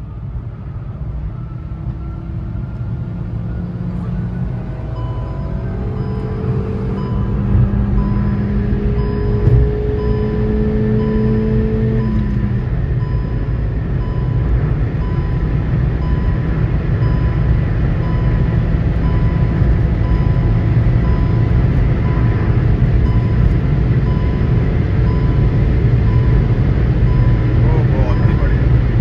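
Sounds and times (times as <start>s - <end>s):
car engine drone: 0.0s - 29.0s
road and wind noise: 0.0s - 29.0s
speed warning chime beeping: 3.6s - 28.8s.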